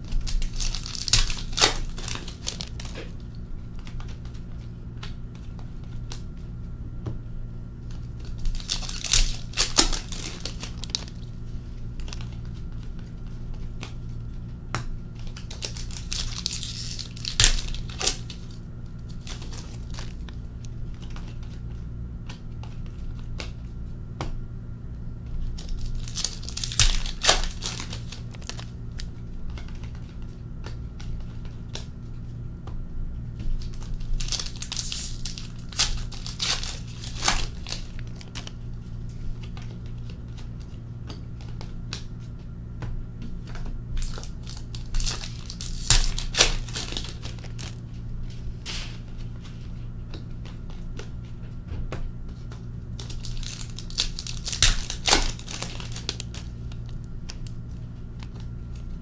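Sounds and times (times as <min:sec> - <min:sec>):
card pack wrappers tearing: 0:00.0 - 0:04.4, 0:07.9 - 0:14.1, 0:15.2 - 0:21.6, 0:25.4 - 0:30.3, 0:33.5 - 0:42.1, 0:44.0 - 0:47.8, 0:52.9 - 0:59.0
handling of cards: 0:00.0 - 0:07.2, 0:07.8 - 0:24.5, 0:25.2 - 0:59.0
steady low hum: 0:00.0 - 0:59.0.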